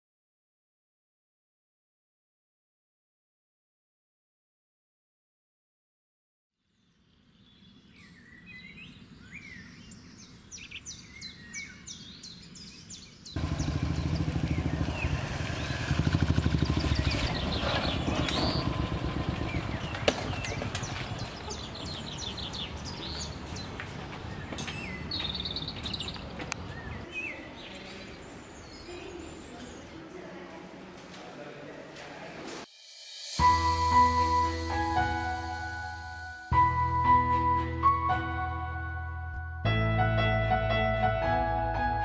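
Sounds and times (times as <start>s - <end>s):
birds chirping: 6.8s - 30.3s
motorcycle engine running: 13.4s - 22.6s.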